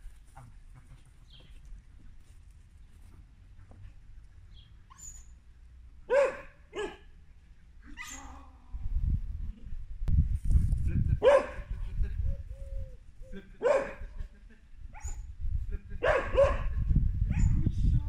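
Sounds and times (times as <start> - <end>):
dog barking: 6.1 - 7.1, 11.2 - 11.7, 13.6 - 14.0, 16.0 - 17.5.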